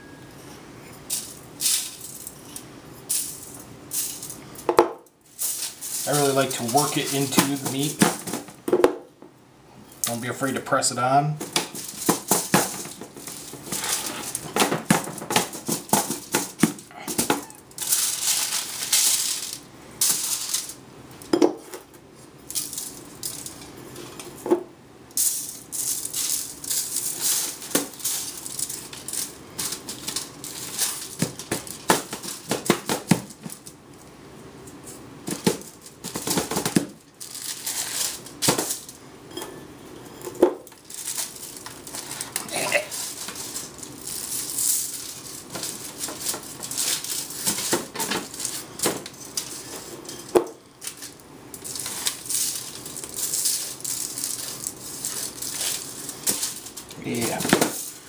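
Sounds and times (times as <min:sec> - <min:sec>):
aluminum foil crinkling: 0:05.3 - 0:08.6, 0:10.0 - 0:20.8, 0:25.2 - 0:39.0, 0:40.2 - 0:58.0.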